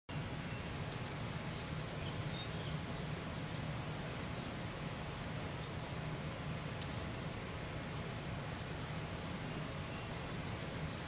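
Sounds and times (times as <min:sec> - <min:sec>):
small birds chirping: 0:00.1 - 0:04.8, 0:05.5 - 0:07.2, 0:08.7 - 0:11.0
low ambient rumble: 0:00.1 - 0:11.0.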